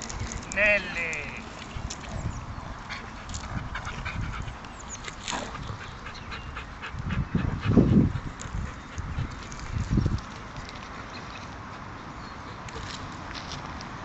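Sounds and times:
dogs panting: 1.6 - 11.1.

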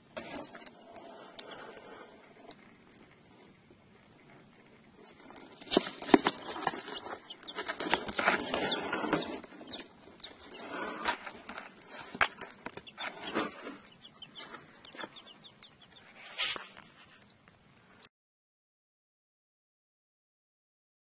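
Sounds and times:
chicks peeping: 0.2 - 17.6.

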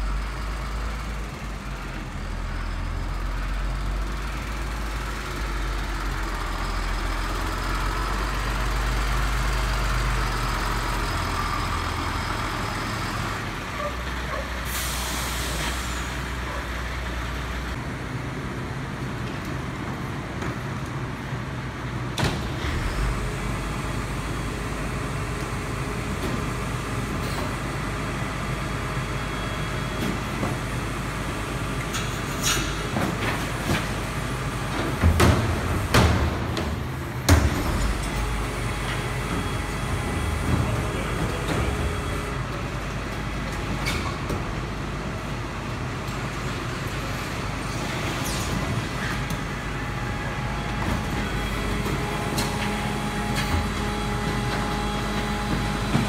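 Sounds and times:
garbage truck engine running: 0.0 - 56.0
loud bangs and clanks: 34.7 - 42.4.

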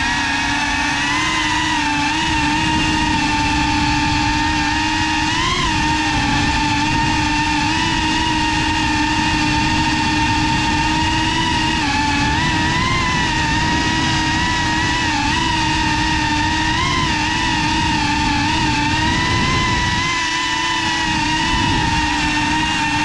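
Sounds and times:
drone motors whining: 0.0 - 23.0.

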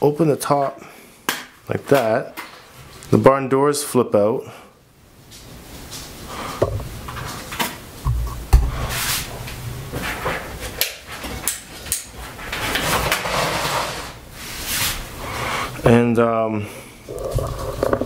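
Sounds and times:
dull thumps: 8.0 - 8.9.

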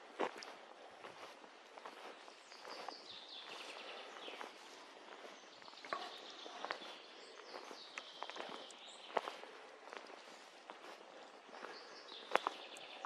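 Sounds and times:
footsteps on dry leaves: 0.0 - 13.0
small birds trilling: 0.4 - 13.0.

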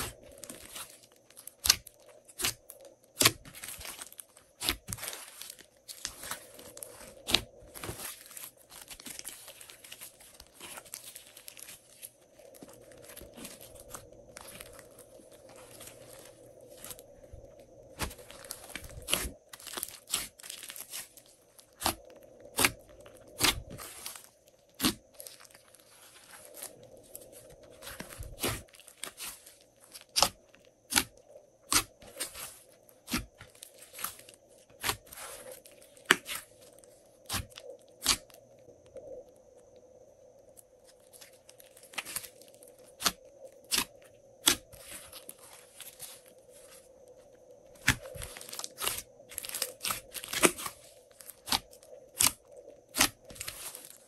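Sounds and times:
hands kneading slime: 0.0 - 36.5, 47.7 - 54.0.

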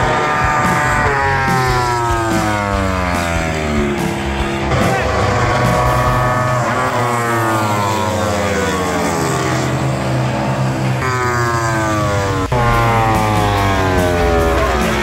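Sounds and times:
motorcycle engines revving: 0.0 - 15.0.

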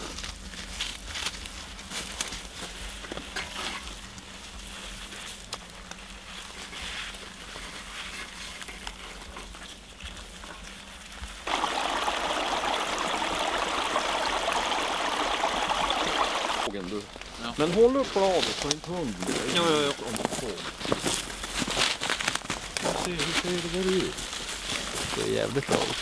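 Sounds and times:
faint clicks and rustles: 0.0 - 11.4, 16.7 - 26.0
running water rushing: 11.4 - 16.7.

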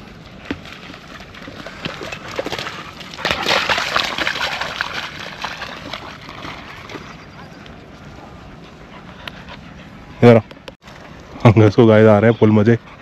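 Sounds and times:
dog splashing through water: 0.0 - 7.2.

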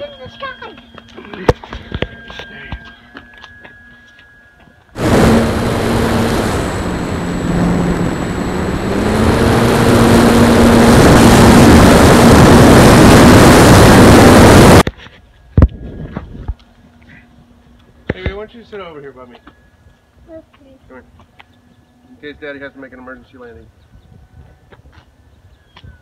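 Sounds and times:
electric motor and propeller droning: 0.0 - 18.8
rushing wind: 5.0 - 14.9.

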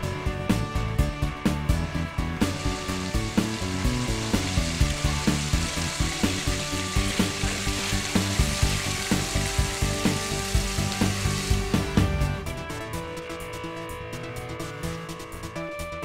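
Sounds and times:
music with steady beat: 0.0 - 16.0
crackling hiss: 2.4 - 11.9.

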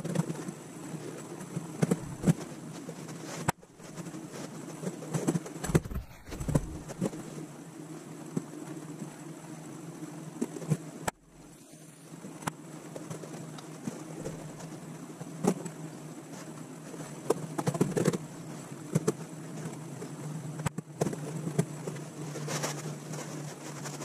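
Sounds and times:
steady low hum: 0.6 - 4.7, 5.5 - 8.3, 9.1 - 17.2.

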